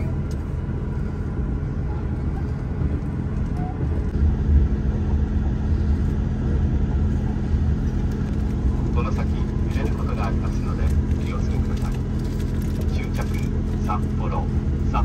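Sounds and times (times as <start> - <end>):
diesel train rumbling: 0.0 - 15.0.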